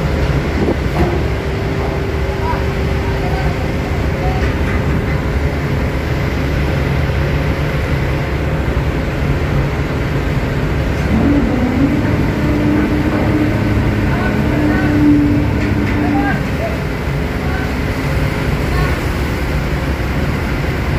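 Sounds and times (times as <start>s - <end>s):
ship rumble with low hum: 0.0s - 20.9s
higher steady tone: 11.0s - 18.0s.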